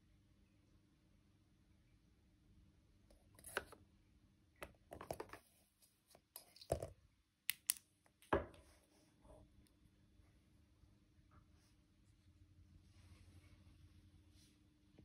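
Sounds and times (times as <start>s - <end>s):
hands handling objects: 3.4s - 3.8s, 4.6s - 7.8s.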